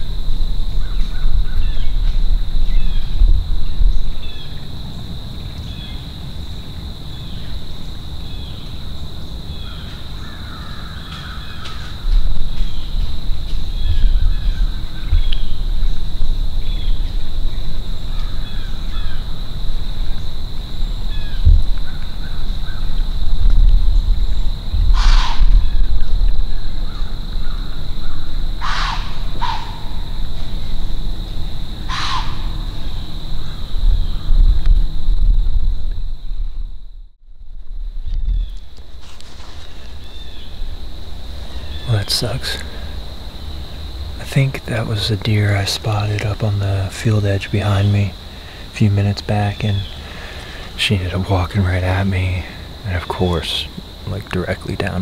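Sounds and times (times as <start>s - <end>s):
wind gusts on microphone: 0.0s - 6.7s, 12.0s - 53.1s
crow cawing: 9.6s - 12.1s, 24.9s - 25.8s, 26.8s - 30.2s, 31.8s - 34.3s.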